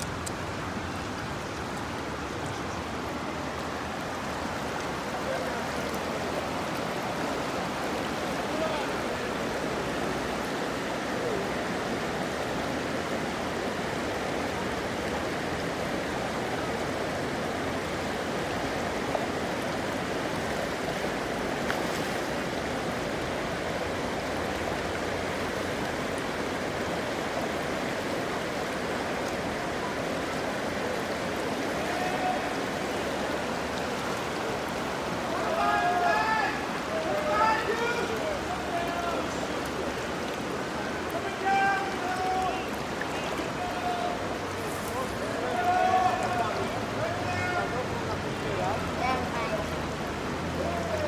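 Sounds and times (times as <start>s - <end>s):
water rushing over rocks: 0.0s - 51.0s.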